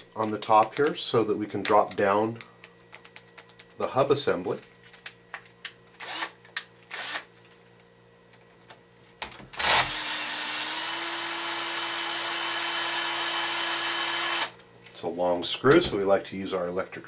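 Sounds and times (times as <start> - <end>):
electric screwdriver motor whine: 6.0 - 7.3, 9.6 - 14.6.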